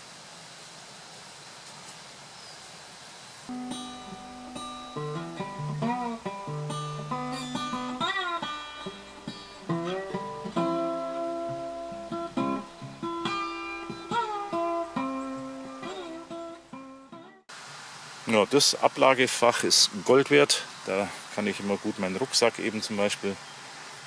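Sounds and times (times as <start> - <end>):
acoustic guitar music: 3.5 - 17.5.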